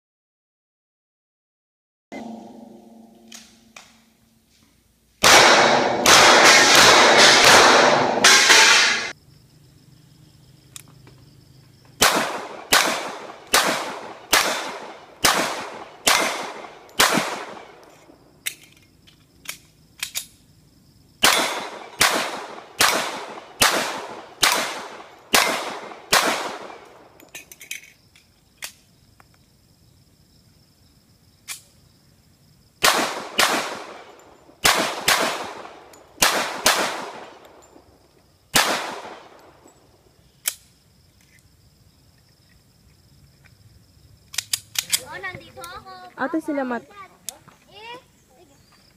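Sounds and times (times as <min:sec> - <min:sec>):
pistol shots: 0:05.2 - 0:09.1, 0:12.0 - 0:17.8, 0:21.2 - 0:27.1, 0:32.8 - 0:37.7, 0:38.5 - 0:39.7.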